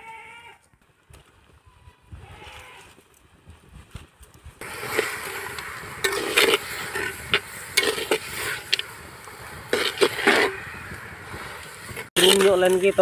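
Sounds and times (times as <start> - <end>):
curry sizzling: 4.6 - 13.0
spoon scraping clay pot: 6.0 - 8.8, 9.7 - 10.7.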